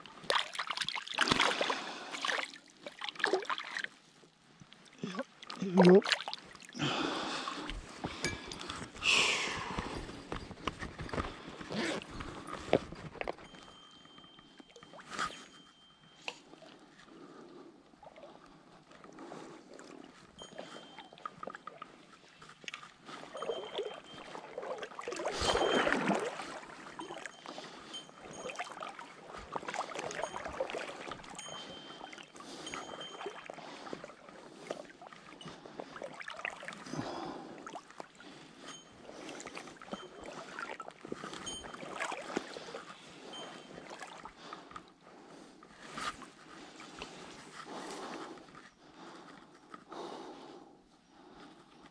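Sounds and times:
river water sloshing and lapping: 0.0 - 49.3
small knocks and splashes: 0.2 - 4.0.

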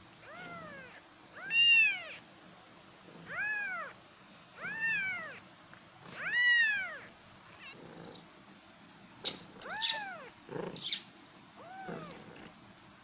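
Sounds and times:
cat meowing: 0.2 - 2.2, 3.2 - 4.0, 4.6 - 5.4, 6.1 - 7.8, 9.6 - 12.3.

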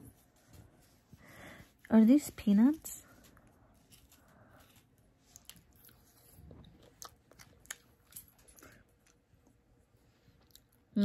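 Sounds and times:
faint chewing: 3.0 - 11.0.

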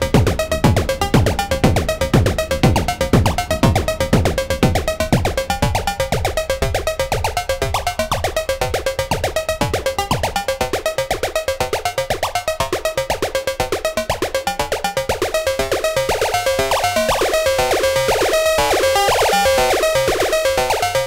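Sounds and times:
pitch-dropping drum hits: 0.1 - 10.9
repeating high synth notes: 0.1 - 21.0.

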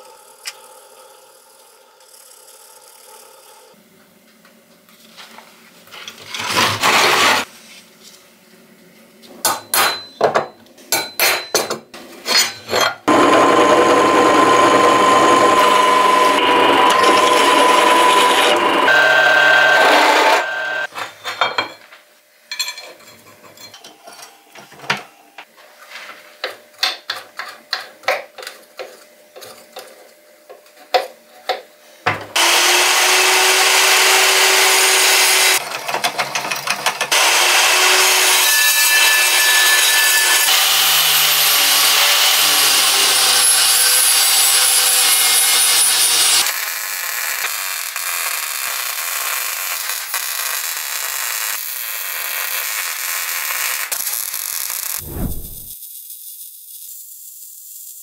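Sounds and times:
power tool running: 13.1 - 20.9, 32.4 - 35.7, 37.1 - 38.4
scraping strokes: 55.0 - 55.8.

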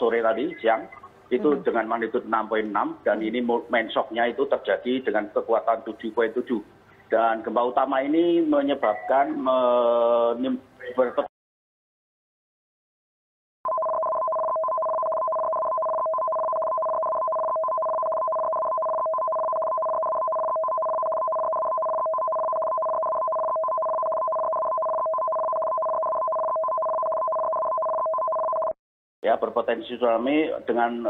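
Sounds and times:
two-tone emergency alert tone: 13.7 - 28.8.

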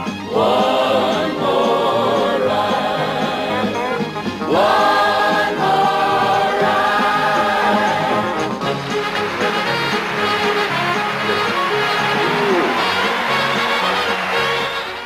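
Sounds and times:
mixed chorus singing: 0.2 - 8.8.

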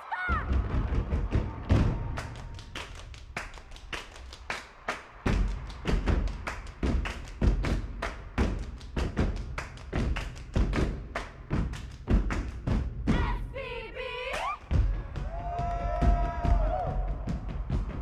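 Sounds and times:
hand claps: 2.0 - 12.9, 14.3 - 14.8.

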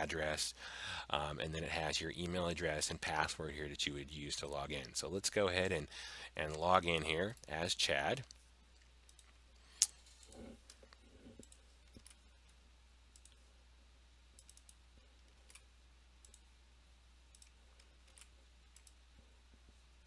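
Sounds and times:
computer mouse clicks: 8.2 - 12.2, 13.1 - 13.4, 14.3 - 16.5, 17.3 - 19.0
keyboard clicks: 14.4 - 14.8, 17.3 - 19.0.

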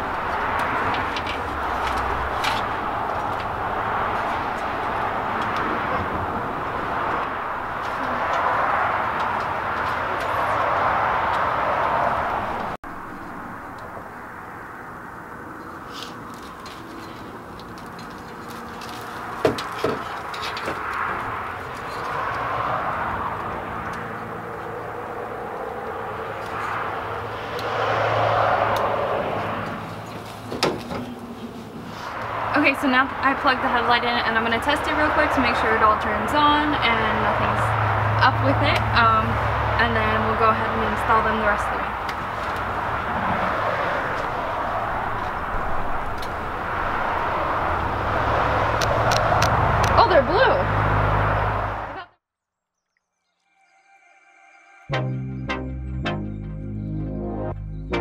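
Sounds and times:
vehicle passing: 0.0 - 52.1
outdoor background roar: 0.0 - 52.7, 53.4 - 58.0.

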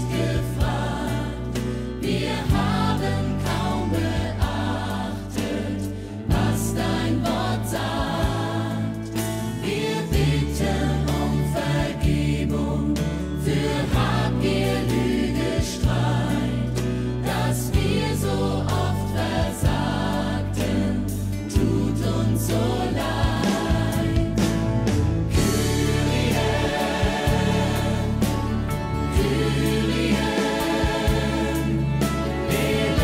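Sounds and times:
voices singing a hymn: 0.0 - 33.0
instrumental accompaniment: 20.7 - 33.0.

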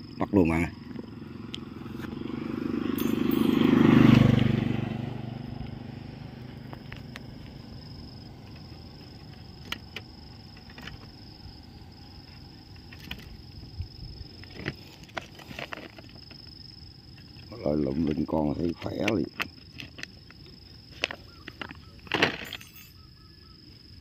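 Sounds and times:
vehicle engine passing by: 0.7 - 9.1.

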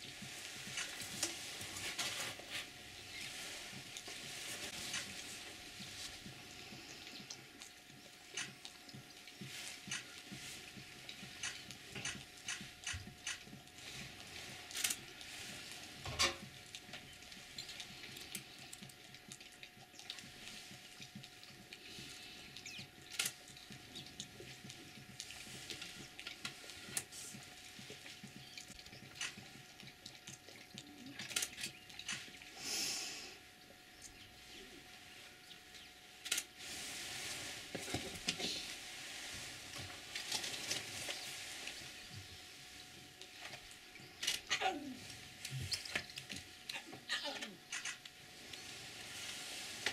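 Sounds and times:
lions lapping water: 0.0 - 32.6
faint steady hum: 0.0 - 49.9.

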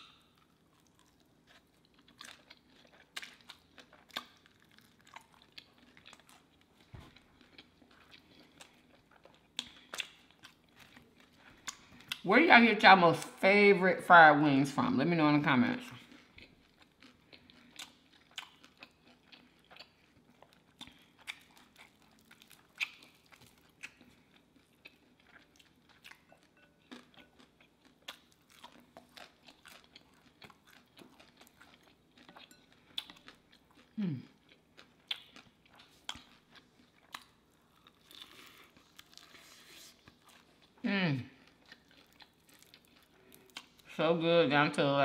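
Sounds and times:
crunchy chewing: 0.0 - 12.2, 16.0 - 43.9.

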